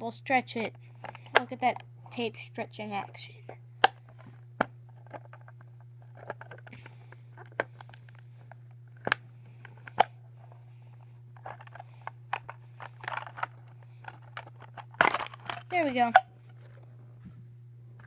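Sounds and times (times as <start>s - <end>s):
plastic snapping: 3.8s - 8.3s, 9.0s - 10.1s, 11.4s - 16.2s
plastic packaging clicks and scrapes: 3.9s - 16.9s
plastic crinkling: 11.4s - 16.9s.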